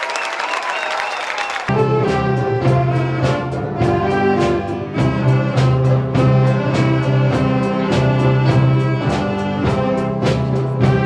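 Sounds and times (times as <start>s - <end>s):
violins and flutes playing: 0.6s - 11.0s
drum kit beat: 1.7s - 11.0s.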